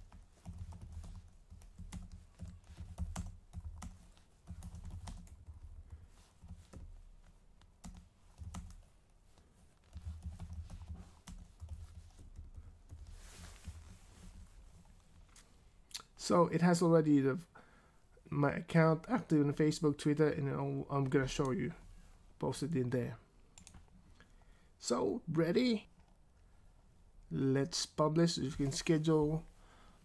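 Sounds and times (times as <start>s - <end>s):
typing on computer keyboard: 0.0s - 6.9s, 7.8s - 8.9s.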